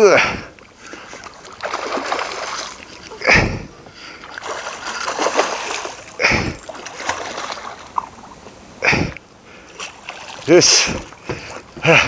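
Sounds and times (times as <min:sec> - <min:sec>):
water sloshing: 0:00.5 - 0:12.0
fish splashing: 0:00.7 - 0:08.5, 0:09.7 - 0:11.8.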